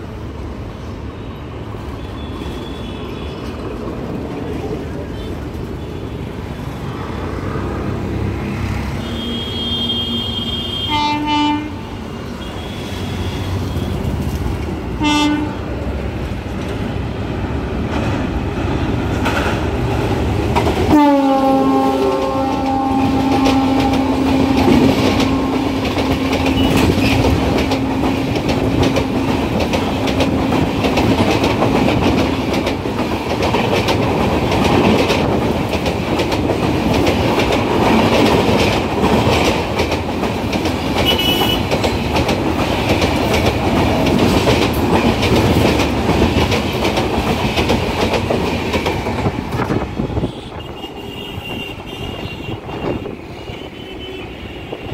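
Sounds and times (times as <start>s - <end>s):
clickety-clack of passing coaches: 1.7s - 54.9s
long train horn blast: 8.8s - 14.1s, 15.0s - 15.8s, 20.9s - 28.1s, 41.0s - 41.7s, 49.9s - 54.9s
train horn blasts: 9.0s - 14.0s, 15.0s - 15.7s, 20.9s - 27.2s, 41.0s - 41.7s, 49.9s - 54.9s.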